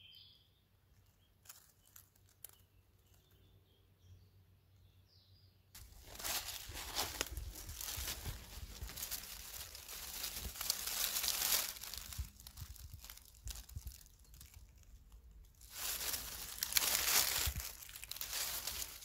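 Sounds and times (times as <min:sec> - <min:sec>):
dry leaves rustling: 0:01.4 - 0:03.2, 0:05.8 - 0:19.0.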